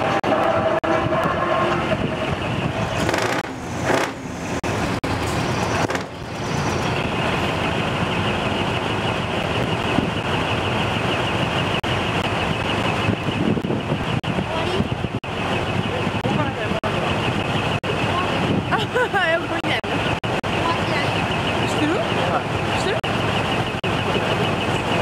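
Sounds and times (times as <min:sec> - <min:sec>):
truck engines idling: 0:00.0 - 0:25.0.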